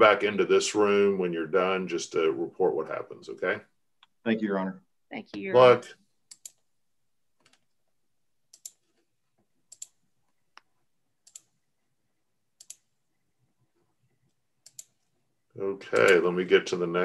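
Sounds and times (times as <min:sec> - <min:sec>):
mouse and keyboard clicks: 0:06.3 - 0:06.6.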